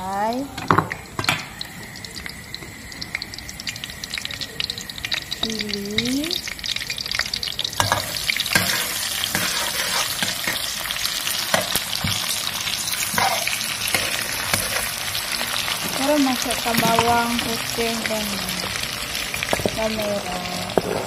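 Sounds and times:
food sizzling in hot oil: 0.0 - 21.0
metal spatula scraping wok: 7.8 - 12.1, 13.0 - 15.8.

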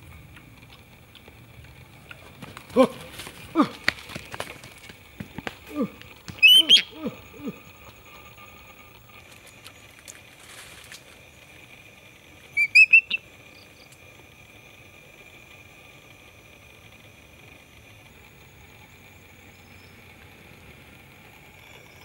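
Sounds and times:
low falling animal calls: 1.5 - 10.0
eagle shrill piping calls: 6.3 - 8.9, 12.6 - 13.3.

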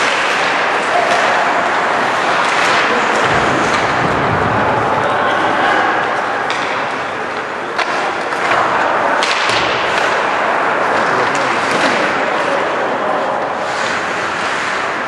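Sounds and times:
hockey sticks and puck clacking: 0.0 - 15.0
skates scraping across ice: 6.1 - 15.0.

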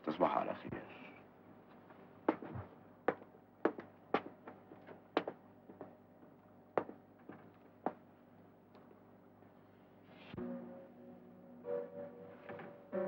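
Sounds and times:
footsteps: 2.3 - 8.0.

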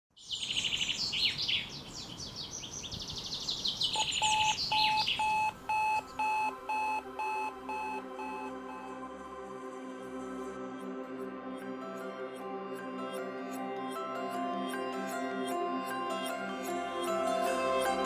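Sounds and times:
birds chirping and singing: 0.2 - 6.4
digital alarm clock beeping: 4.0 - 9.0.

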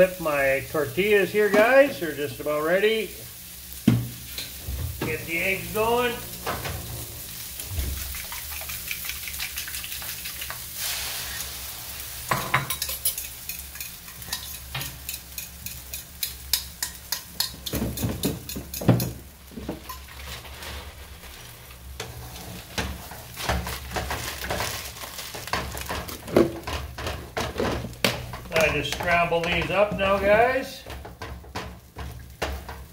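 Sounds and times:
food sizzling in a frying pan: 0.0 - 32.9
utensil scraping and tapping pan: 12.3 - 20.1.

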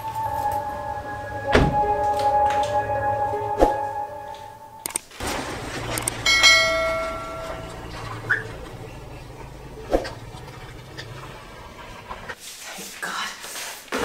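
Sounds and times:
bell-like chime: 0.0 - 4.8, 6.2 - 8.2
low steady rumble: 0.0 - 12.4.

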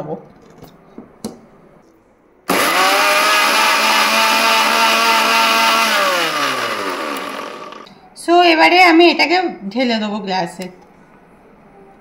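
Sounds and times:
mixer grinder motor running: 2.5 - 7.9.

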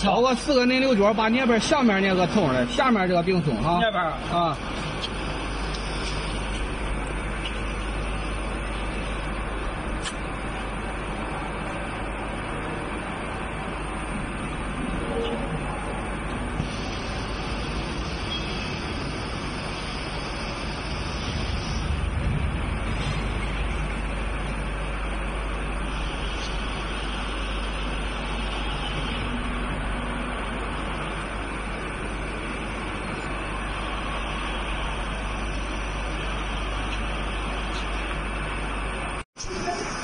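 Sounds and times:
low machinery hum: 0.0 - 40.0
even rushing noise: 14.0 - 26.9.

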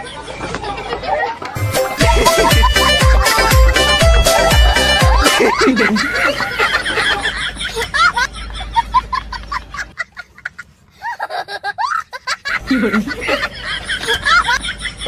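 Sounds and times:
crowd laughing and chattering: 0.0 - 10.8.

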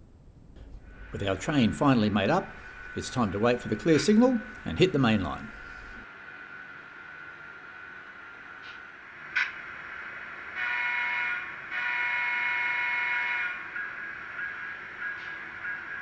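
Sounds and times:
train horn blasts from small speaker: 10.5 - 13.7.

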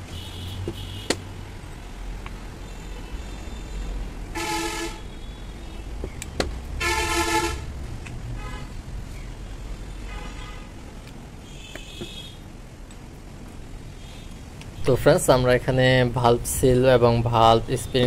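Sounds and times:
vehicle horn honking: 0.1 - 1.2, 2.7 - 5.6, 6.8 - 7.7, 10.0 - 10.7, 11.4 - 12.4.

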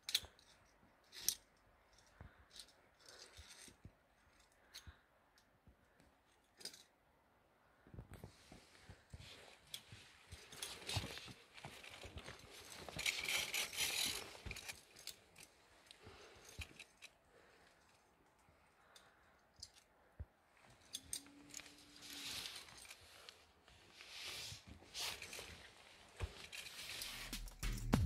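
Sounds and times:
carabiners clicking on steel cable: 0.0 - 5.5, 9.7 - 19.9, 20.6 - 23.4.

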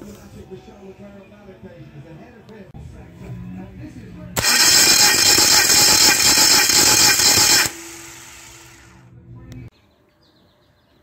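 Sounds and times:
starter motor cranking engine: 4.4 - 9.0
low hum: 4.4 - 9.7.

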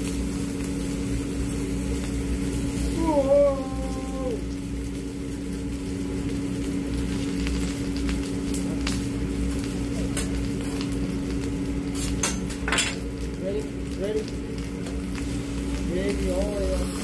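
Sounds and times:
food sizzling on a griddle: 0.0 - 17.0
steady hum: 0.0 - 17.0.

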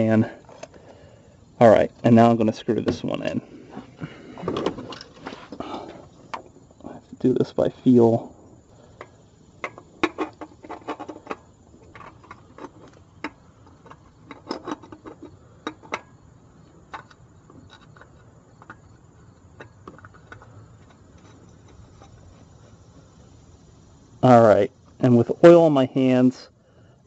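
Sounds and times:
hands clicking and tapping oil filter: 9.0 - 16.1, 16.9 - 22.5.

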